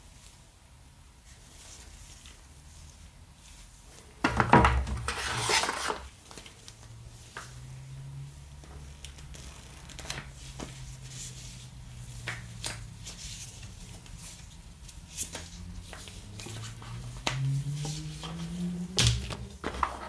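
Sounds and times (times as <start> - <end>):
paper rustling: 4.5 - 6.7, 9.1 - 11.6.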